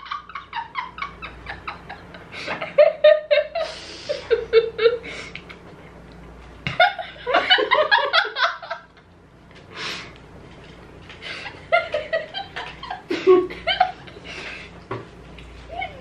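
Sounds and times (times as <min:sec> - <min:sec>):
young people giggling: 0:00.0 - 0:05.0, 0:11.2 - 0:14.3.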